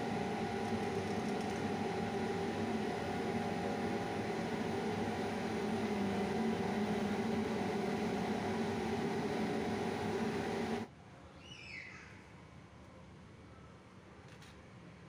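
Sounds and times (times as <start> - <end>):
machine motor hum: 0.0 - 10.9.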